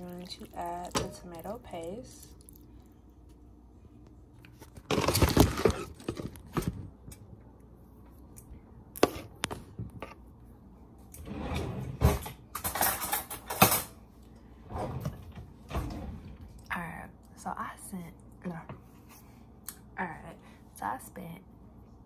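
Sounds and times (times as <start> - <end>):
kitchen items clattering: 4.6 - 6.9, 11.4 - 14.0.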